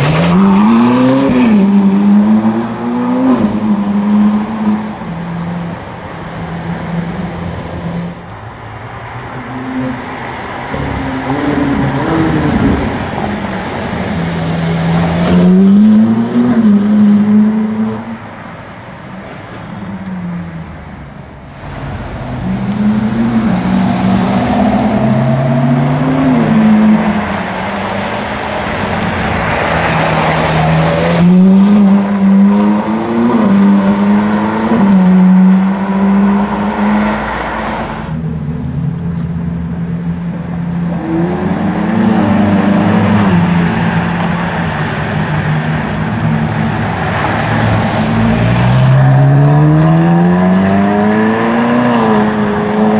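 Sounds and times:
sports cars accelerating past: 0:21.6 - 0:52.9.

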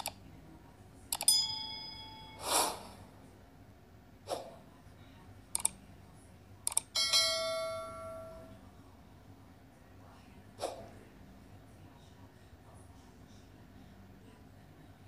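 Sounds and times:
bell ding ringing: 0:01.3 - 0:02.4, 0:07.0 - 0:08.5
short chime: 0:01.4 - 0:02.5
mouse clicks: 0:05.6 - 0:05.8, 0:06.7 - 0:06.9.

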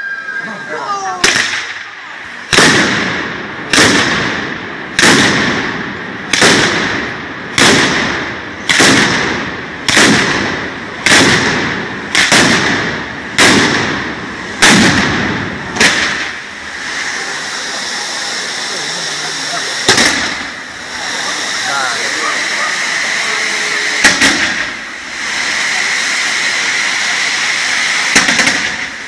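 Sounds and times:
firecracker bangs: 0:01.2 - 0:29.0
spark fountains hissing: 0:07.8 - 0:29.0.

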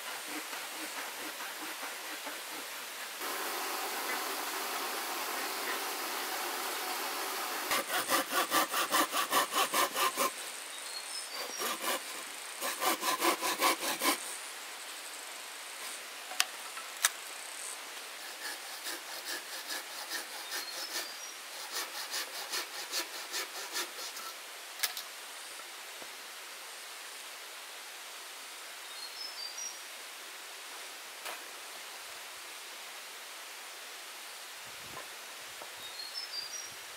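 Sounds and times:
hand saw cutting wood: 0:00.0 - 0:10.4, 0:11.3 - 0:14.3, 0:18.2 - 0:24.4.

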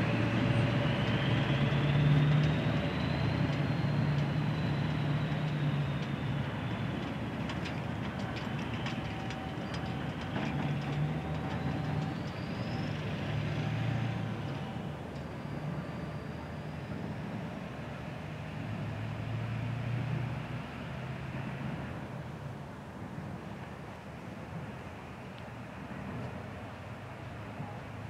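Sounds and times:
train wheels rumbling and clicking: 0:00.0 - 0:16.4
high wheel squeal: 0:08.6 - 0:17.7.

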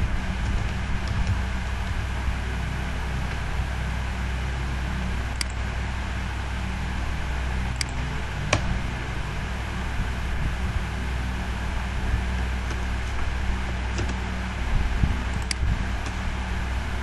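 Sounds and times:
low hum and hiss: 0:00.0 - 0:17.0.

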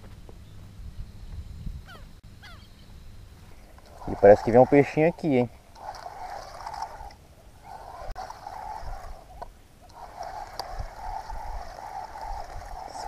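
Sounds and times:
spinning reel gears whirring: 0:03.7 - 0:13.0.

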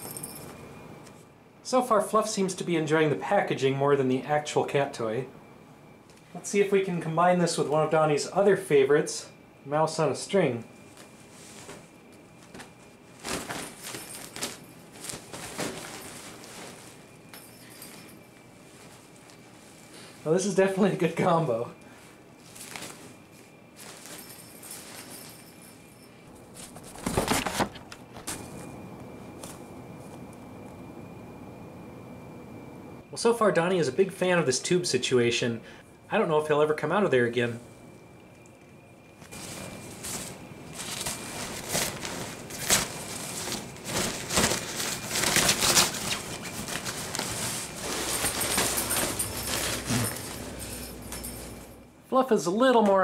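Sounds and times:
fabric tunnel crinkling: 0:10.9 - 0:25.9, 0:39.3 - 0:50.8.

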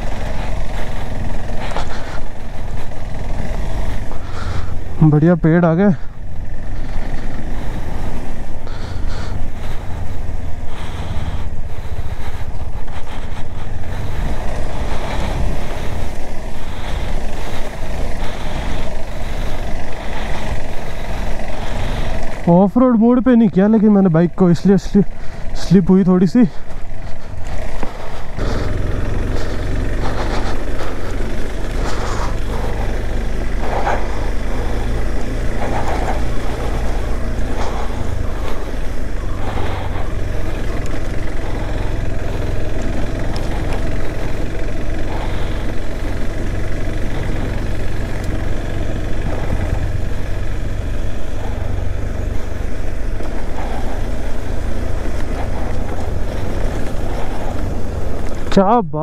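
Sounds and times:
motorcycle engine rumbling: 0:00.0 - 0:59.0.

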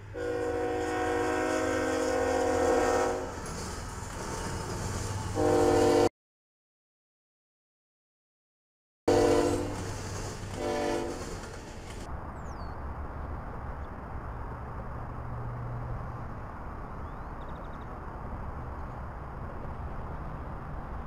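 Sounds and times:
locomotive horn blasts: 0:00.1 - 0:03.5, 0:05.3 - 0:06.1, 0:09.1 - 0:09.8, 0:10.6 - 0:11.2
faint high chirp: 0:17.0 - 0:17.9.

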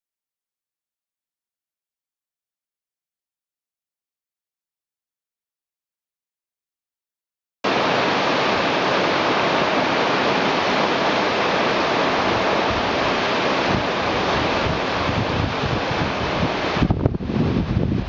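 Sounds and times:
waterfall roaring over boulders: 0:07.6 - 0:18.0.

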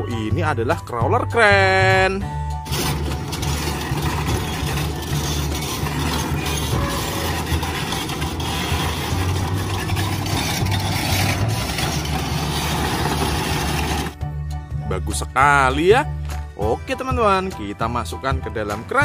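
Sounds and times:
crane diesel engine running: 0:02.5 - 0:14.2.

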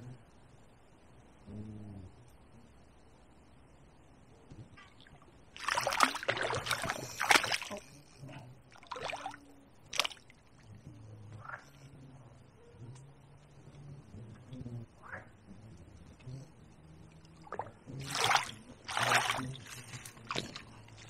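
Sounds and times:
fish splashing in water: 0:05.6 - 0:08.0, 0:08.7 - 0:10.3, 0:17.5 - 0:21.0.

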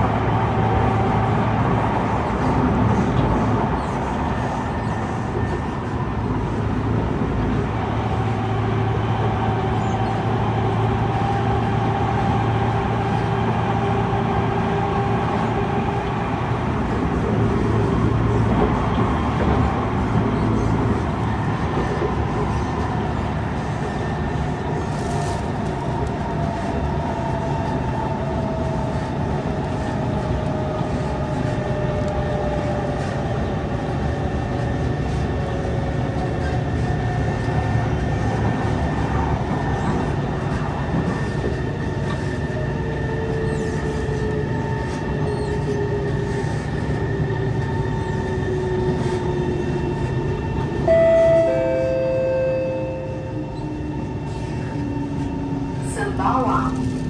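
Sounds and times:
train wheels rumbling on track: 0:00.0 - 0:57.0
two-note chime: 0:50.9 - 0:53.4.

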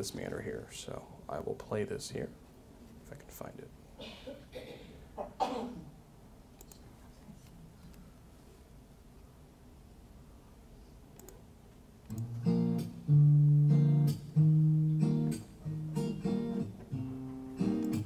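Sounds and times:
acoustic guitar chords over speakers: 0:12.1 - 0:18.0.

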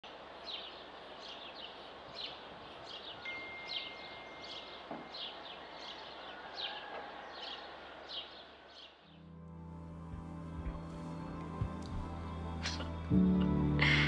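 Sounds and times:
outdoor hiss: 0:00.0 - 0:06.4, 0:07.8 - 0:14.0.

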